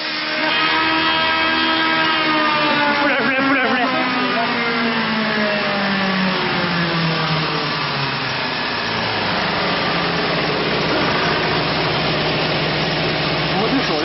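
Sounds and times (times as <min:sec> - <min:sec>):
wood shaving machine running: 0:00.0 - 0:14.0.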